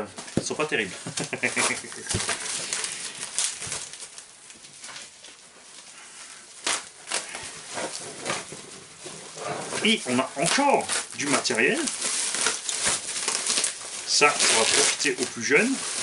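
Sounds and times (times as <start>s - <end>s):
items knocking in box: 0.2s - 2.6s
packing material rustling: 0.2s - 16.0s.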